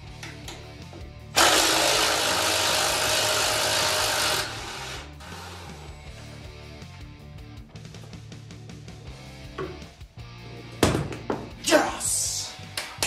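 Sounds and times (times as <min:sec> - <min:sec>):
background music: 0:00.0 - 0:13.0
power tool spinning bolt: 0:01.4 - 0:06.0.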